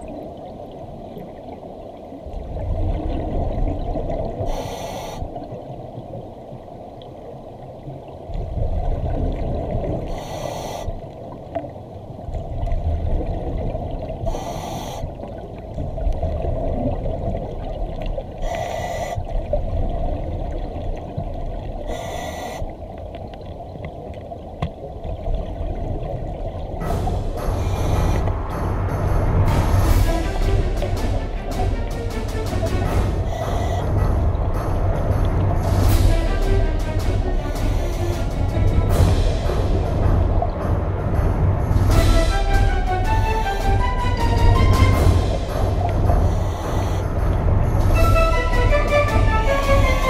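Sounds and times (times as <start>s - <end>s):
low bubbling rumble: 0.0s - 4.6s, 5.3s - 10.2s, 11.0s - 14.4s, 15.1s - 18.5s, 19.2s - 22.0s, 22.7s - 50.0s
scuba regulator breath hiss: 4.5s - 5.4s, 10.1s - 11.1s, 14.2s - 15.3s, 18.4s - 19.3s, 21.9s - 22.8s, 27.5s - 28.3s, 33.2s - 33.9s, 37.6s - 38.3s, 46.2s - 47.0s.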